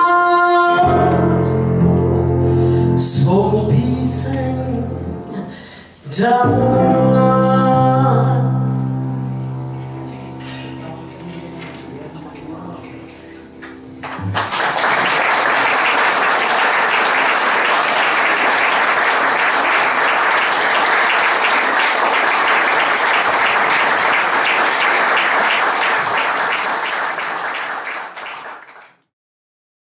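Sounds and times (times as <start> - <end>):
music: 0.0 - 16.6
audience applauding: 13.6 - 29.0.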